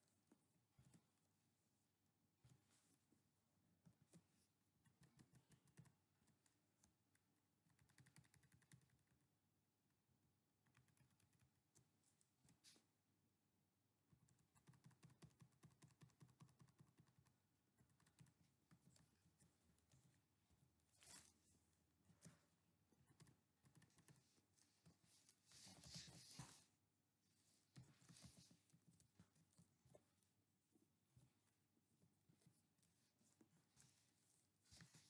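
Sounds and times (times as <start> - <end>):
faint keyboard typing: 3.8 - 9.4, 10.6 - 12.9, 14.0 - 21.4, 22.0 - 26.7, 27.6 - 30.4.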